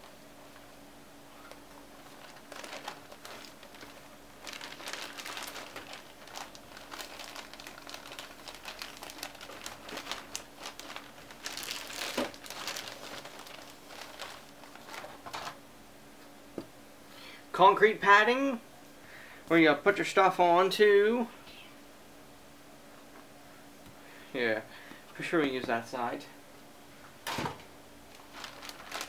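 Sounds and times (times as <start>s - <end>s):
plastic wrap crinkling: 1.3s - 15.6s, 28.1s - 29.0s.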